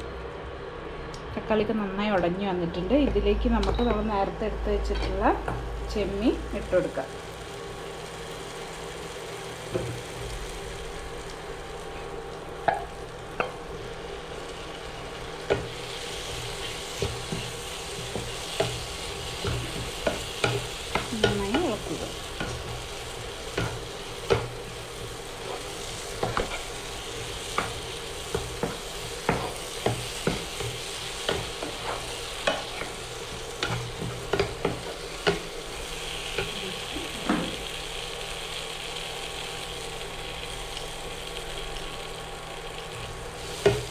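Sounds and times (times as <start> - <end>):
food sizzling in a pan: 3.5 - 43.9
spatula scraping a pan: 27.4 - 32.9.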